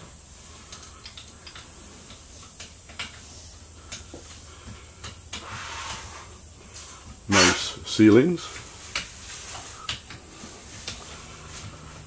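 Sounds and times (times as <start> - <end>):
steady hiss: 0.0 - 12.0
light clicks and ticks: 0.7 - 3.2.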